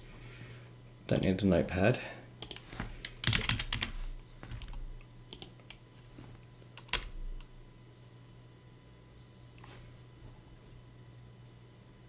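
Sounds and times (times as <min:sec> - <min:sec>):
computer keyboard typing: 0:02.4 - 0:05.8, 0:06.8 - 0:07.1.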